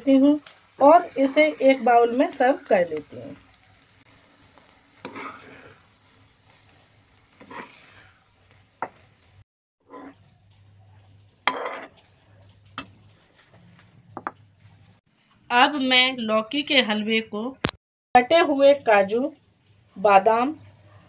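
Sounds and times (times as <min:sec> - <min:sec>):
spatula scraping a pan: 0:03.7 - 0:09.2, 0:09.8 - 0:14.0
spatula tapping pan and bowl: 0:12.7 - 0:13.1.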